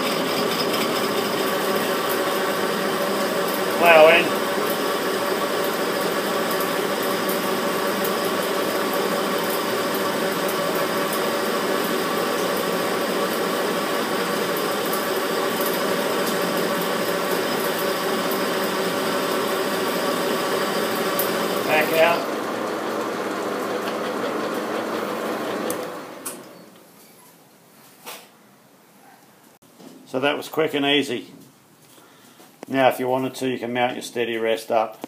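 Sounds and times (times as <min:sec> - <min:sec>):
metal lathe running: 0:00.0 - 0:26.6.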